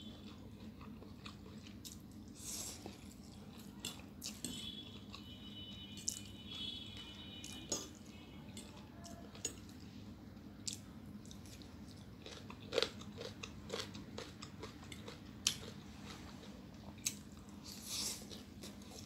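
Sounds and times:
chewing noodles: 0.0 - 5.4, 10.6 - 19.0
faint steady hum: 0.0 - 19.0.

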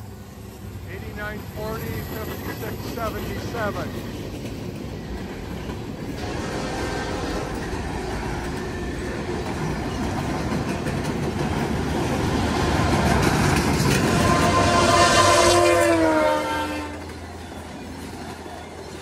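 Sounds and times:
freight cars rumbling past: 0.0 - 19.0
train horn: 6.2 - 7.8, 14.0 - 17.2.

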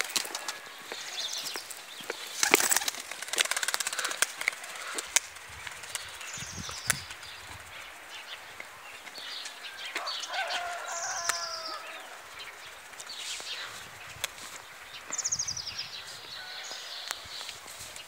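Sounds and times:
small birds chirping: 0.0 - 18.0
sharp clicks: 2.4 - 7.2, 11.2 - 11.5.

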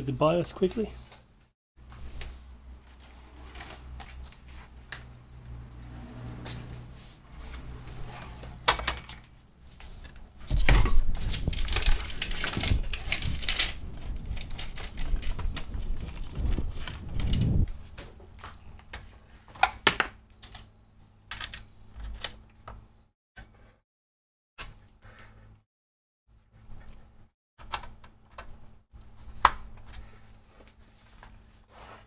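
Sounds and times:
cables dragged on a workbench: 5.6 - 8.7.

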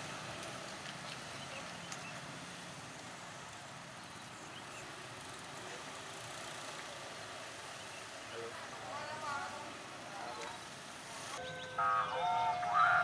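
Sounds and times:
railcar engine hum: 11.4 - 13.0.

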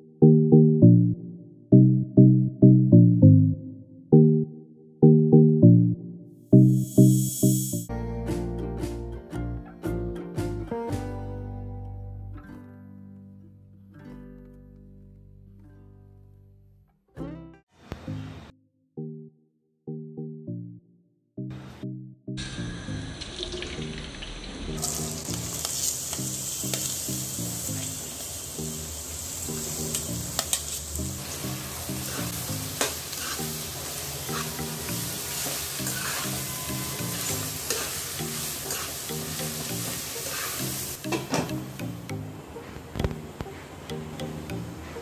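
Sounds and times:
background music: 0.0 - 16.0, 21.4 - 45.0
onions sizzling in oil: 6.6 - 7.8, 22.4 - 41.1
metal spatula scraping pan: 32.0 - 39.1.

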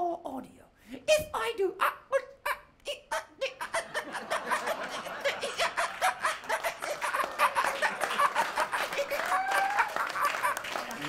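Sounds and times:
audience laughing: 3.5 - 11.0.

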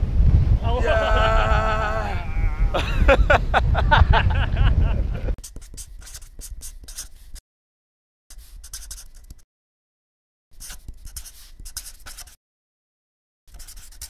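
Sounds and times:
low rumble: 1.5 - 5.4.

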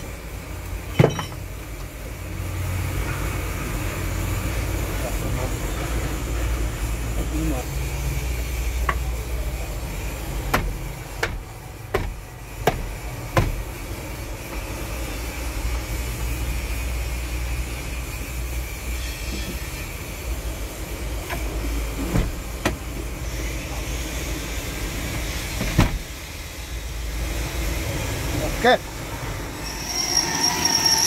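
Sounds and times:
sharp clicks of truck controls: 10.4 - 13.8.

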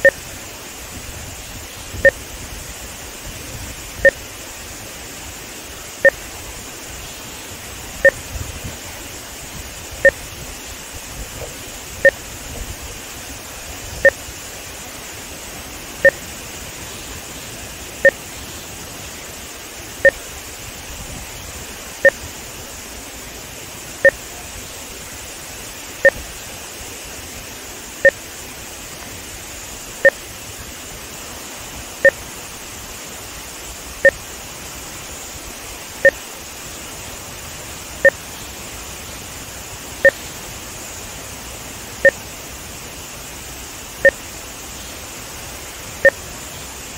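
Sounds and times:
short two-tone electronic beeps: 0.0 - 0.2
water rushing through a dam: 0.0 - 46.9.

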